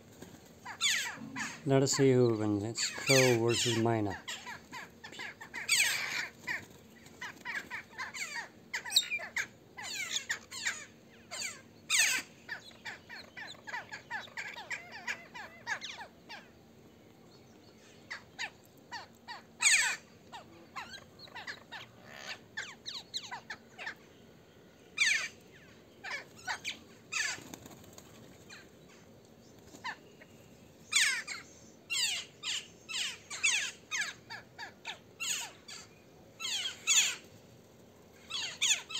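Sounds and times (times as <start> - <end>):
mynas calling: 0.6 - 16.6, 17.8 - 24.1, 25.0 - 29.1, 29.7 - 37.3, 38.2 - 38.9
crows cawing: 2.8 - 12.6.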